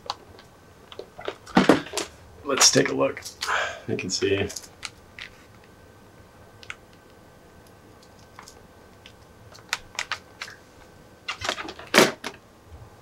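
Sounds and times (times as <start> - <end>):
plastic tray clicking and crackling: 8.0 - 10.6.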